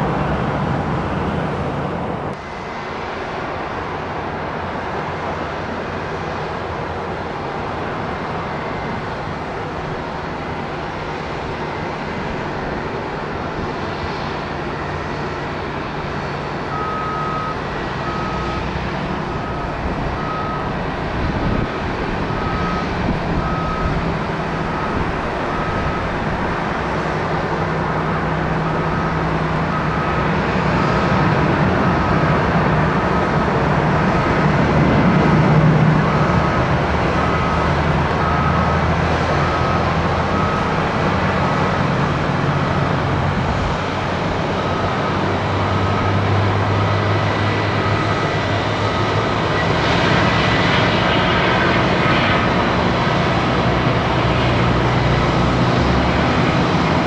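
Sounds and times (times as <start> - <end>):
jet engine rumble: 0.0 - 57.0
reversing beeper beeping: 13.4 - 32.5, 36.0 - 43.2, 44.4 - 54.2.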